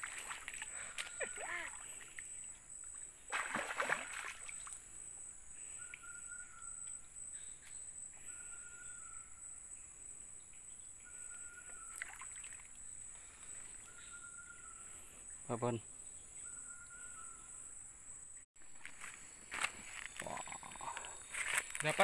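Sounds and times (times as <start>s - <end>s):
high insect drone: 0.0s - 22.0s
fish splashing in water: 3.3s - 4.6s.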